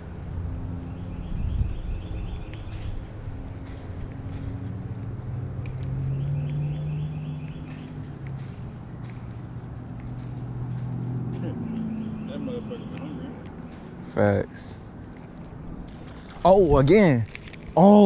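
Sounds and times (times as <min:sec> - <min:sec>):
wind rumbling on microphone: 0:01.2 - 0:05.6
faint clicks: 0:03.5 - 0:10.9.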